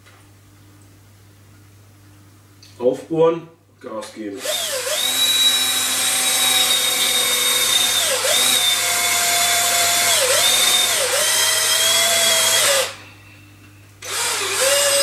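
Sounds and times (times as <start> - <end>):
cordless drill boring wood: 4.4 - 13.0, 14.0 - 15.0.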